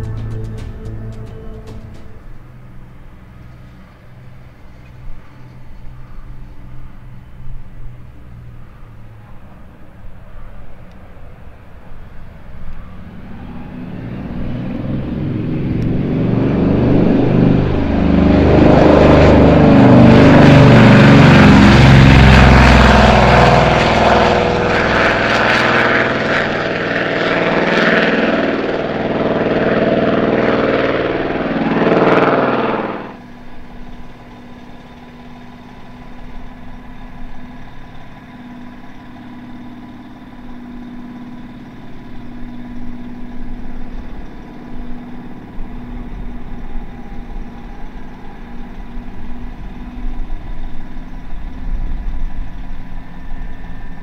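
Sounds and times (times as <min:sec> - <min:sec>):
aircraft piston engines roaring: 0:00.0 - 0:54.0.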